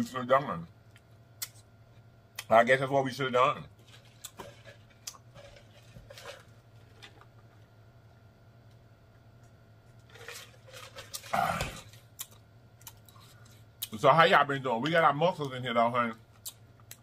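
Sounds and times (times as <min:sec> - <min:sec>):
man drinking from mug: 0:10.0 - 0:12.0
throaty vocal sound: 0:11.3 - 0:11.9.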